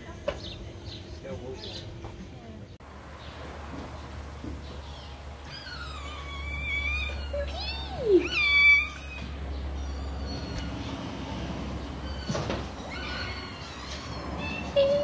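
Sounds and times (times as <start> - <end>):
kittens meowing: 5.4 - 10.9, 12.0 - 15.0.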